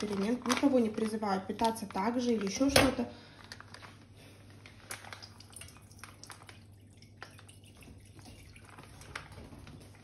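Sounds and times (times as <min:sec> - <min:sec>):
milk pouring into saucepan: 0:04.6 - 0:10.0.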